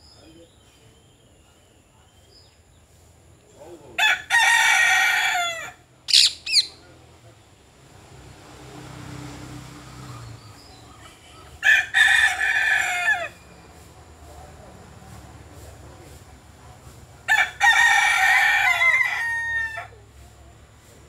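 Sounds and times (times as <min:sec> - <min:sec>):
rooster crowing: 0:04.0 - 0:06.6, 0:11.5 - 0:13.5, 0:17.3 - 0:20.0
short high bird calls: 0:06.1 - 0:06.8.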